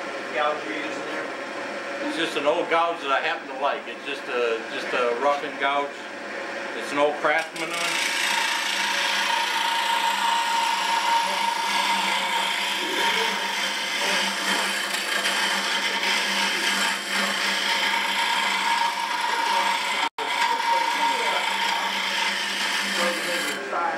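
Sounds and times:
tool scraping wood on lathe: 7.3s - 23.7s.

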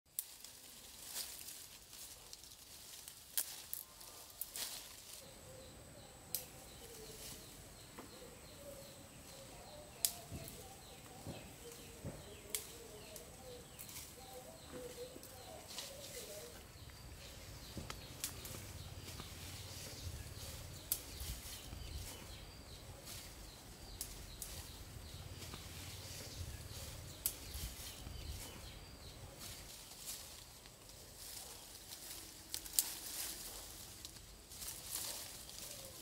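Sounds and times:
birds warbling: 4.1s - 30.5s.

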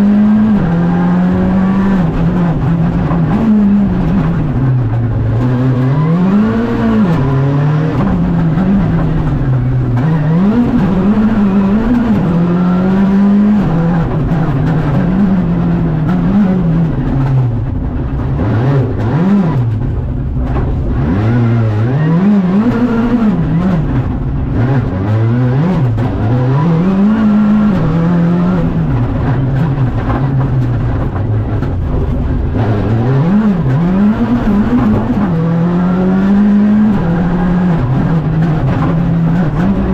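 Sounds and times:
car engine revving from cabin: 32.5s - 39.9s.

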